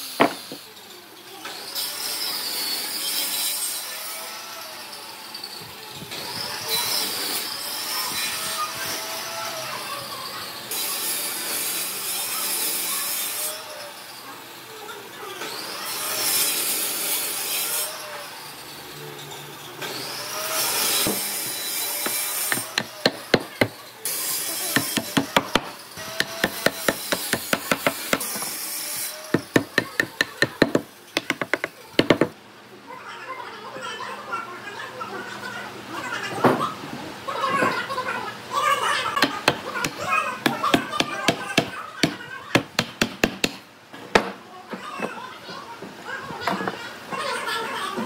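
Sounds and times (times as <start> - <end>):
wooden block hammering wood: 0.2 - 0.6, 22.0 - 23.8, 24.7 - 28.5, 29.3 - 32.4, 39.2 - 43.6.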